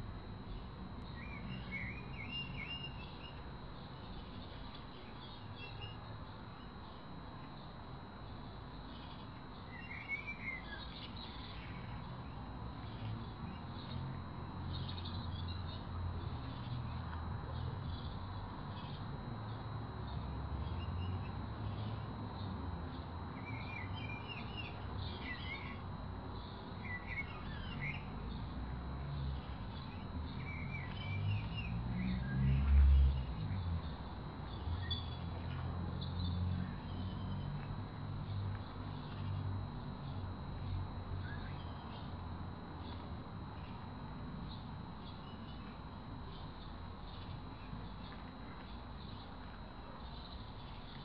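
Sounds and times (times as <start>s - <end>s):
small birds chirping: 29.2s - 37.7s.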